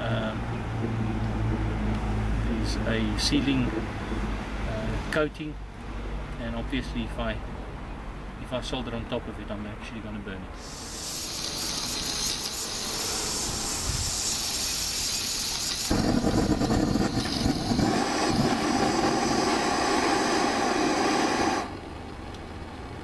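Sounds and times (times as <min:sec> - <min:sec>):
gas hissing from blowtorch: 0:10.6 - 0:21.8
blowtorch flame rushing: 0:10.6 - 0:22.0.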